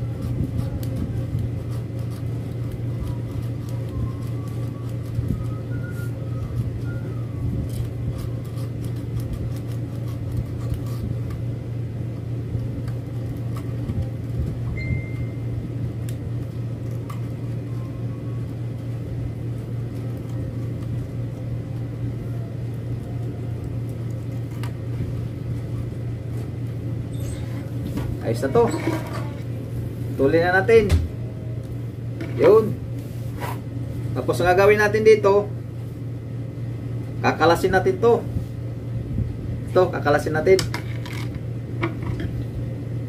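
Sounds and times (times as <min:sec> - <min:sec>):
low mechanical hum: 0:00.0 - 0:43.0
brief high tone: 0:14.8 - 0:15.5.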